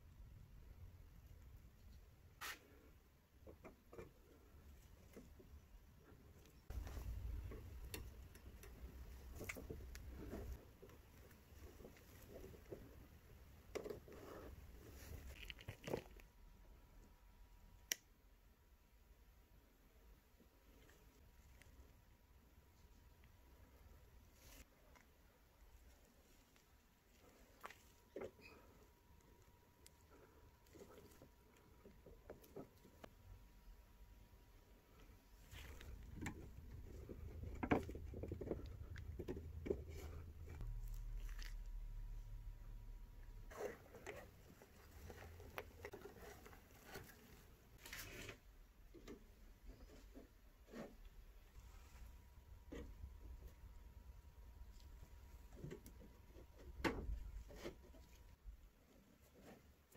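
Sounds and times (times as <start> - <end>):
soft plastic rubs and scrapes: 1.8 - 16.3, 20.4 - 33.6, 34.6 - 59.9
low steady hum: 4.0 - 59.6.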